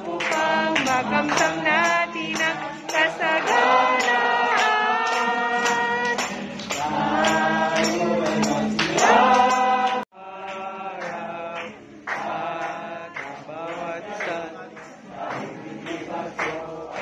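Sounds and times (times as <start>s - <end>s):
strummed acoustic guitar: 0.0s - 10.0s
group singing a hymn: 0.0s - 17.0s.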